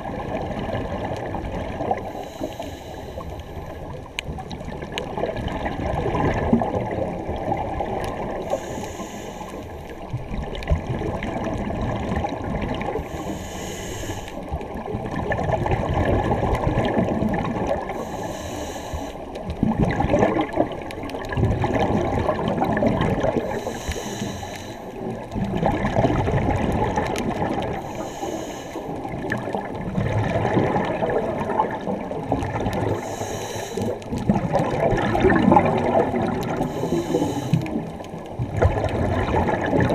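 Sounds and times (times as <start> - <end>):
gurgling exhaled bubbles: 0.0 - 13.4, 14.1 - 18.3, 19.2 - 24.2, 24.9 - 39.9
regulator inhalation hiss: 2.1 - 3.7, 8.5 - 9.9, 13.0 - 14.4, 18.0 - 19.2, 23.5 - 25.0, 27.8 - 29.0, 33.0 - 34.0, 36.6 - 37.8.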